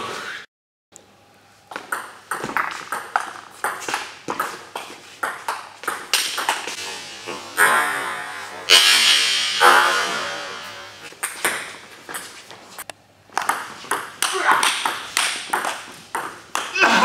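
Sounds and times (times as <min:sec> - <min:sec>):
ping pong ball hits: 0:01.7 - 0:06.8, 0:13.4 - 0:16.8
burst of noise: 0:06.8 - 0:11.1
ball bouncing on table: 0:13.4 - 0:16.8.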